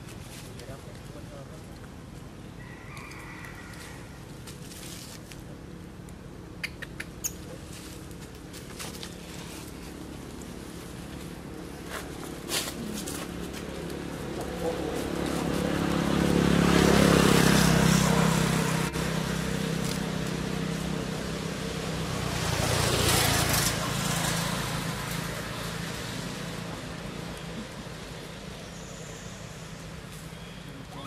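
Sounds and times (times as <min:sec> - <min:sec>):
motor engine running: 0:07.4 - 0:31.0.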